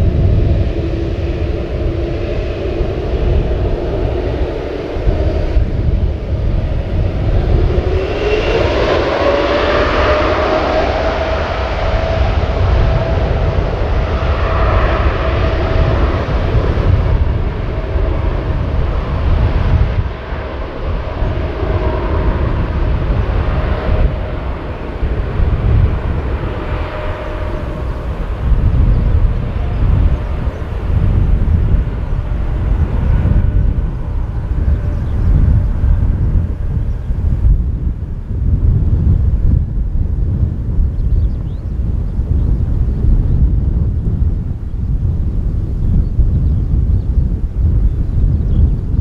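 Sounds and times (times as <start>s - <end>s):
jet engine whine: 0.0s - 49.0s
low jet rumble: 0.0s - 49.0s.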